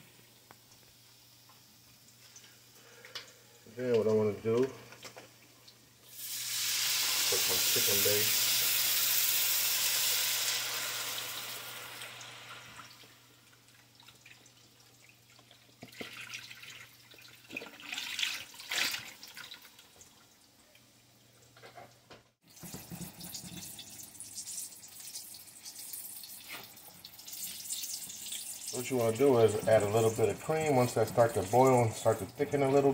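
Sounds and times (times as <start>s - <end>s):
oil sizzling in a pan: 0.3s - 3.7s, 5.2s - 15.0s, 22.4s - 32.9s.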